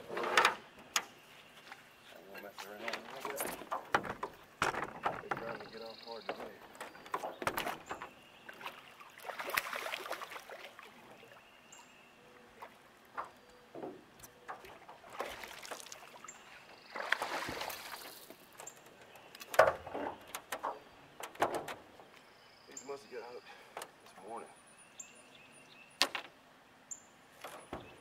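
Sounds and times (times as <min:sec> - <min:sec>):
water splashing and sloshing: 0:02.6 - 0:22.3
sharp knocks: 0:03.4 - 0:08.1.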